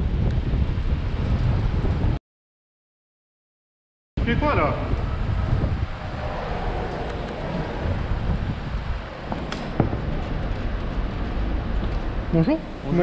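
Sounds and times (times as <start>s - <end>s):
wind buffeting the microphone: 0.0s - 2.2s, 4.2s - 13.0s
traffic noise: 4.2s - 13.0s.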